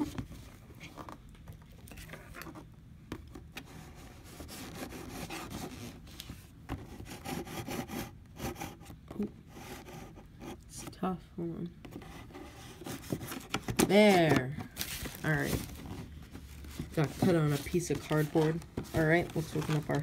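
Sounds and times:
cutting tool scraping cardboard: 0:03.6 - 0:06.0, 0:06.8 - 0:10.2.

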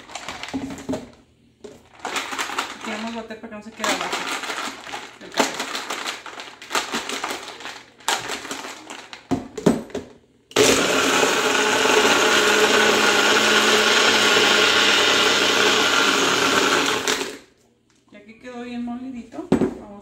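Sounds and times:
blender blending ice: 0:10.5 - 0:17.5.

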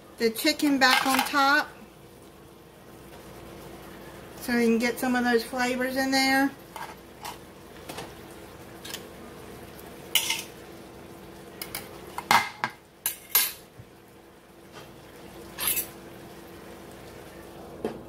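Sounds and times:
faint steady hum: 0:00.0 - 0:18.0
utensils clattering on skillet: 0:00.6 - 0:01.6, 0:06.7 - 0:08.1, 0:10.1 - 0:10.6, 0:11.6 - 0:13.7, 0:15.5 - 0:16.0.

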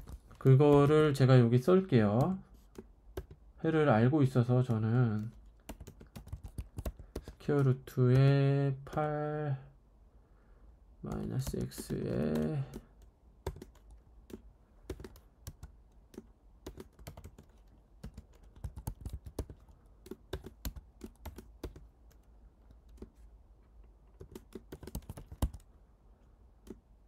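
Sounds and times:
computer keyboard typing: 0:00.0 - 0:01.3, 0:01.9 - 0:03.4, 0:04.2 - 0:09.1, 0:11.0 - 0:23.2, 0:24.2 - 0:25.7.

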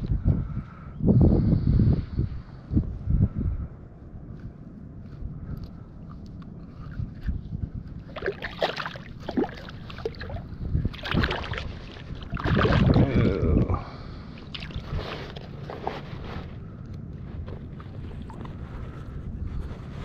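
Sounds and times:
fish splashing at water surface: 0:08.1 - 0:13.2.

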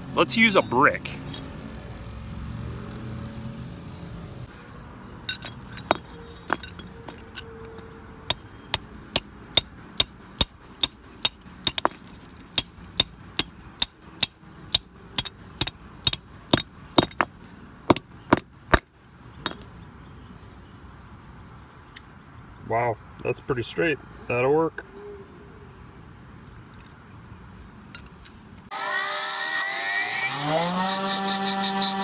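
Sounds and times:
brick hammering metal rod on concrete: 0:00.4 - 0:00.9, 0:05.3 - 0:19.7.

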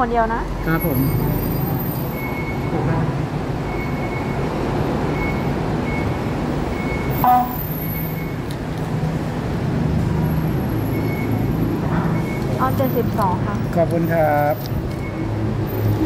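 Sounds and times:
loud beep-like tone: 0:00.6 - 0:04.5, 0:05.1 - 0:08.4
faint short high beeps: 0:06.8 - 0:08.4.

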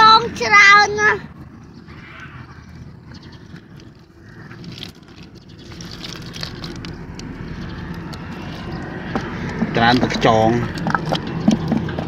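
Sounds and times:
low background rumble: 0:00.0 - 0:12.0
snail shells clicking and rattling: 0:03.2 - 0:09.7, 0:10.5 - 0:12.0.

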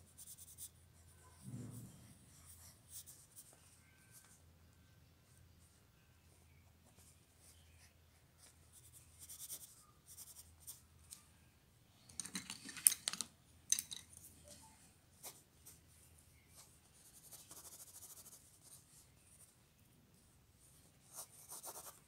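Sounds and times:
pencil scratching on paper: 0:08.4 - 0:10.8, 0:17.1 - 0:18.8, 0:21.1 - 0:22.0.

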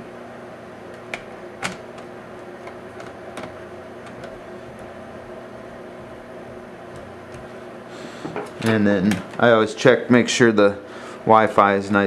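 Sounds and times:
steady hum: 0:00.0 - 0:12.0.

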